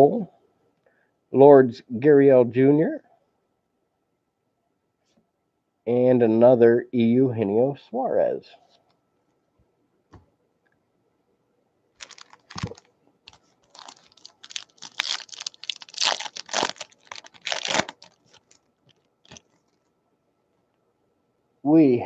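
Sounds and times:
plastic wrapper crinkling and tearing: 12.0s - 19.9s.

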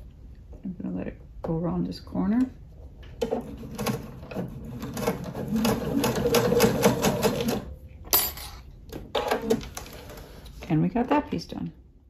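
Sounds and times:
sewing machine stitching: 3.2s - 7.7s.

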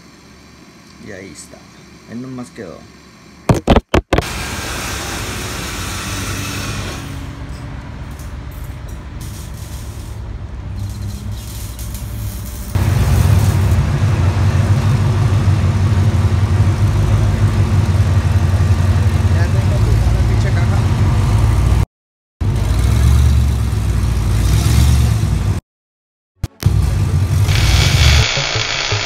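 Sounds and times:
truck engine exhaust running: 7.4s - 21.8s.

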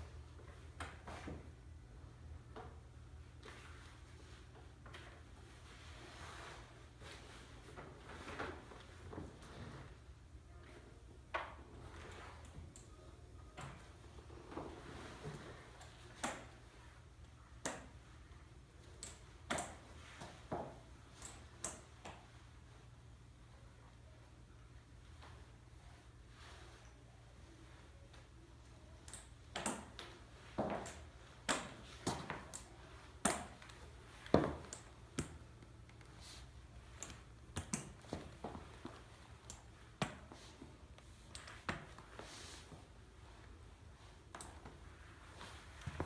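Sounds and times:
crutches tapping on wooden floor: 33.2s - 35.4s.

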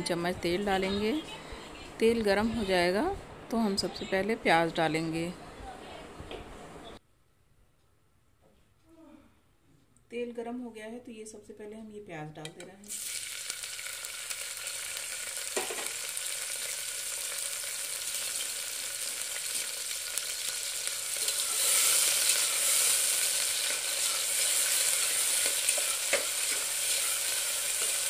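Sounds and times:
onions sizzling in hot oil: 12.9s - 28.0s.

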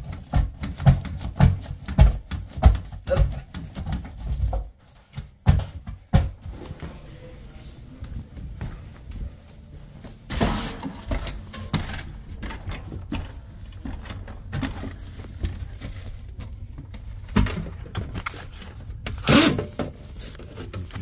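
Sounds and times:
knocks and bumps on wooden ladder: 0.0s - 6.6s, 10.3s - 18.2s.

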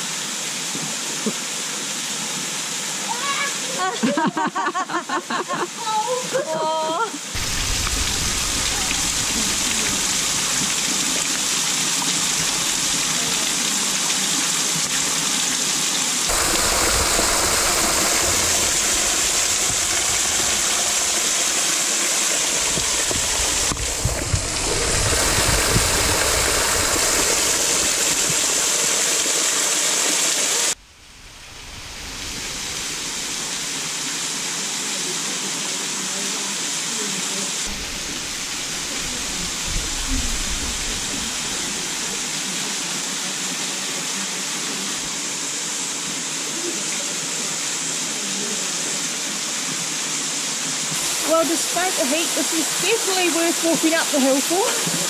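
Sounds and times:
waterfall splashing onto rock: 7.4s - 30.8s, 36.9s - 43.4s.

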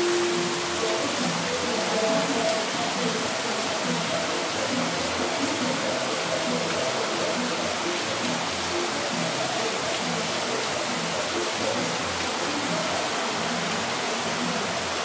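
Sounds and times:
faint music: 0.0s - 15.0s
heavy rain pouring: 0.0s - 15.0s
water running off roofs: 0.0s - 15.0s.

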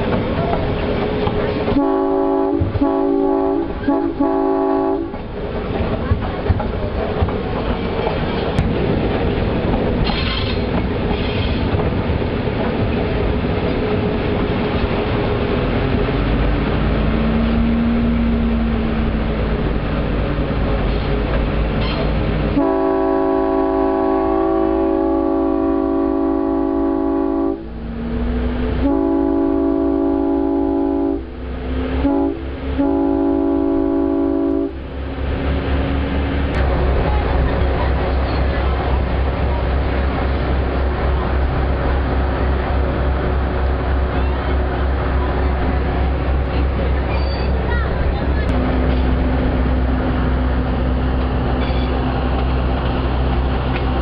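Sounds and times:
train rumbling along track: 0.0s - 54.0s
locomotive horn blasts: 1.8s - 5.2s, 21.8s - 27.7s, 28.8s - 31.4s, 32.0s - 34.9s.

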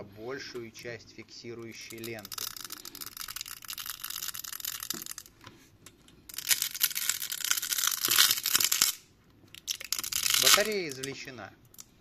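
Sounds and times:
adhesive tape peeling: 1.6s - 5.3s, 6.3s - 11.1s.

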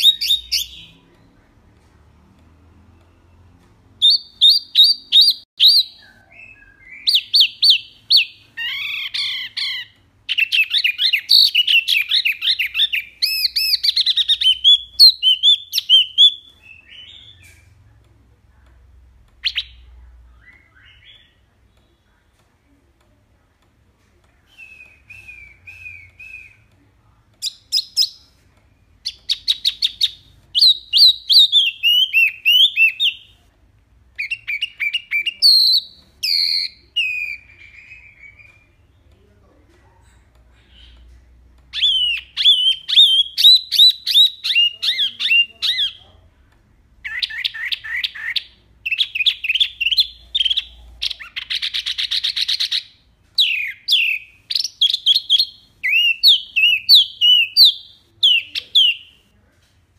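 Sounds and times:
songbird singing rapid notes: 41.7s - 46.1s.

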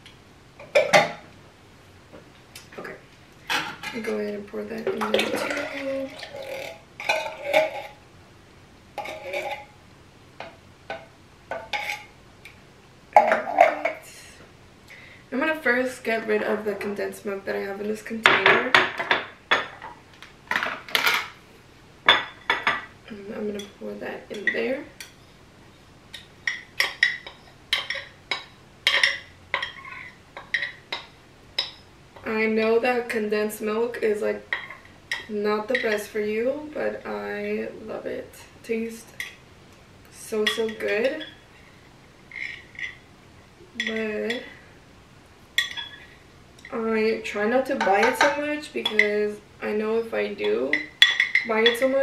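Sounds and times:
spoon scraping a container: 9.0s - 9.7s.

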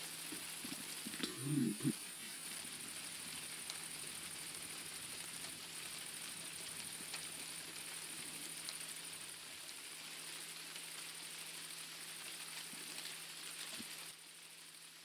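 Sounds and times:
low steady hum: 0.0s - 10.1s
faint ticks: 0.0s - 14.8s
insect chirring: 0.0s - 15.0s.

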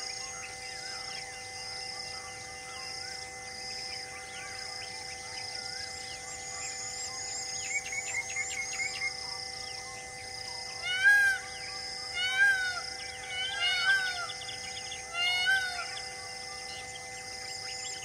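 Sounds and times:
high-pitched drone: 0.0s - 18.0s
animal calling: 10.8s - 16.8s.

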